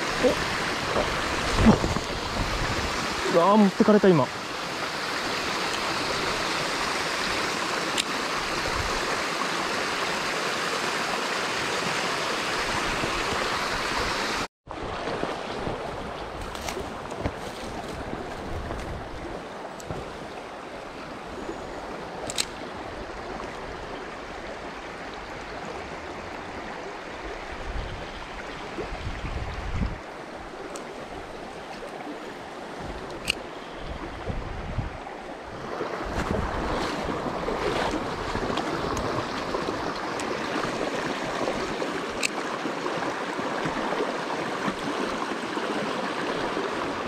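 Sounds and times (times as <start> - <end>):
small waterfall splashing: 0.0 - 18.4, 35.6 - 47.0
creek flowing over stones: 0.0 - 47.0.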